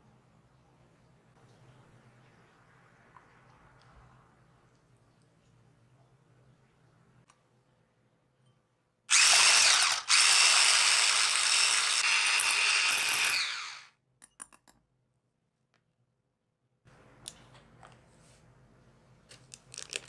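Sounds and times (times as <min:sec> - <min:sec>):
electric hand mixer whipping: 0:09.1 - 0:13.9.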